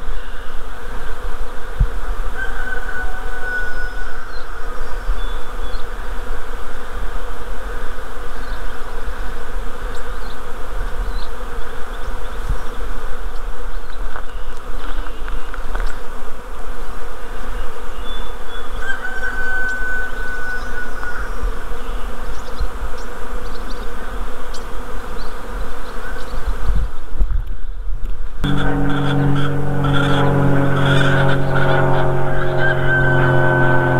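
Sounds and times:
bee swarm buzzing: 0.0s - 27.2s, 28.2s - 33.9s.

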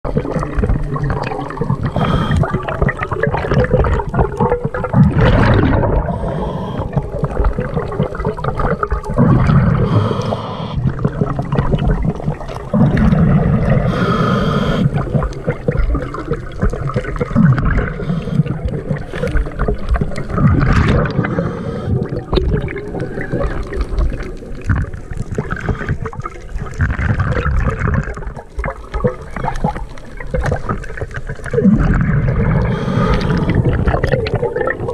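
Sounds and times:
exhaled bubbles gurgling underwater: 0.0s - 34.9s
regulator inhalation hiss: 1.9s - 2.6s, 6.1s - 7.0s, 9.7s - 10.8s, 13.8s - 15.0s, 18.0s - 18.6s, 21.2s - 22.1s, 32.7s - 33.6s.

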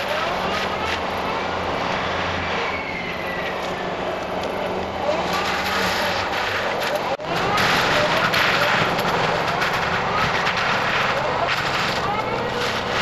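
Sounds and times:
diesel loader engine running: 0.0s - 13.0s
forestry mulcher head grinding: 3.3s - 13.0s
wood debris cracking: 4.2s - 13.0s.

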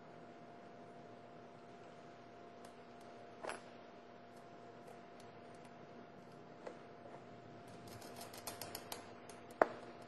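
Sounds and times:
faint steady hum: 0.0s - 10.0s
small metallic clicks and ticks: 7.6s - 10.0s.

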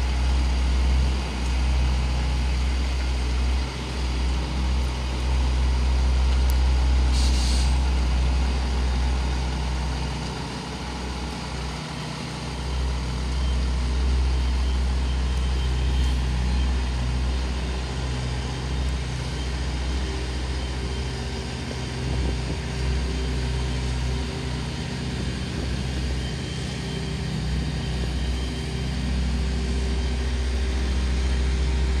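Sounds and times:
truck diesel engine at low revs: 0.0s - 32.0s
air hiss: 7.1s - 7.9s.

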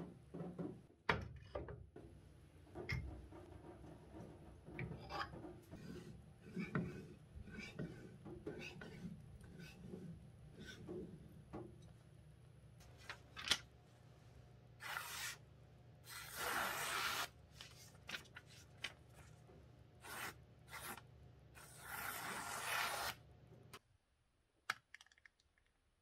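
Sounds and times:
paper towel rubbing knife blade: 14.8s - 15.4s, 16.1s - 17.3s.

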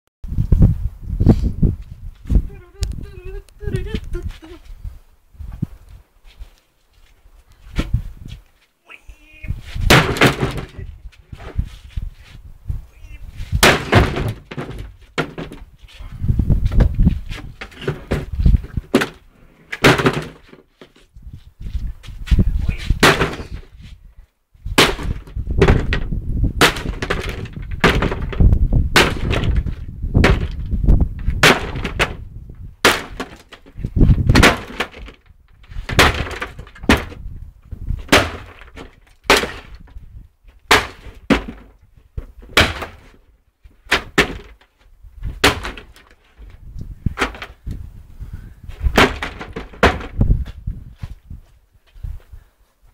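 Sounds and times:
wooden boards cracking: 9.8s - 11.6s, 13.5s - 15.7s, 16.8s - 21.0s, 23.0s - 23.6s, 24.8s - 37.2s, 38.0s - 40.0s, 40.7s - 47.6s, 48.8s - 50.2s.

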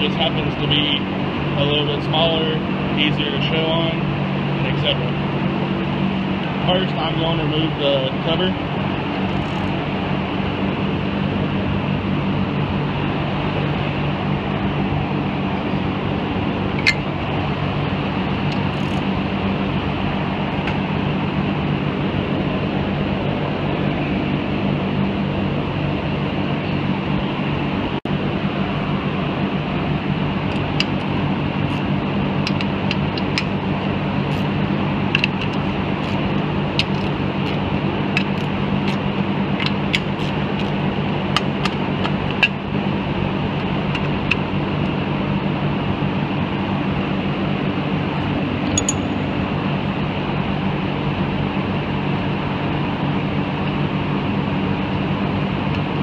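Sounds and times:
steady mechanical hum: 0.0s - 56.0s
socket ratchet clicking: 18.5s - 19.0s, 36.8s - 37.6s, 38.2s - 39.0s, 48.7s - 49.1s
sharp metallic ping: 48.7s - 49.6s.

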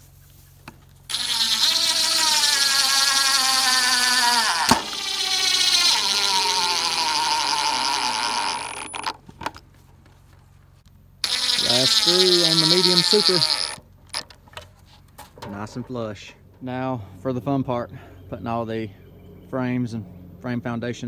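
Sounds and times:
power driver driving screw into wood: 1.1s - 9.6s, 11.2s - 14.3s.

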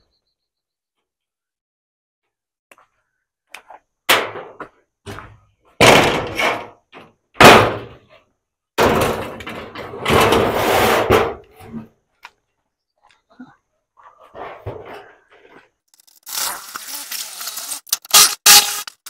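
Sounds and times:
loud bangs and knocks: 5.8s - 6.7s, 7.4s - 8.0s, 8.8s - 11.4s.

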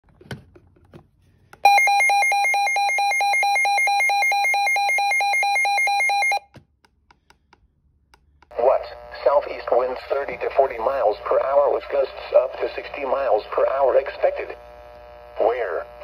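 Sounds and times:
rapidly pulsing alarm beep: 1.7s - 6.4s.

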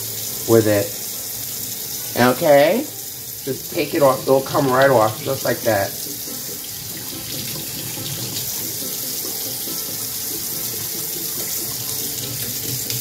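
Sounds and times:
tap running into steel sink: 4.4s - 13.0s.

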